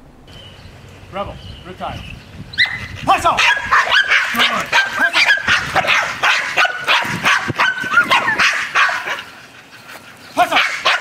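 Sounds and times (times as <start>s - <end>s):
dogs barking: 2.6s - 11.0s.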